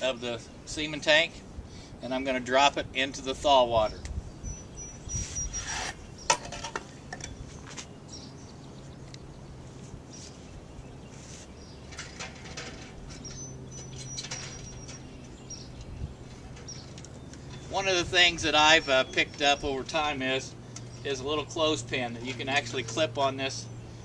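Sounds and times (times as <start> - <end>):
thin high squeak: 5.1 - 6.0
faint scrapes and rustles: 9.7 - 13.4.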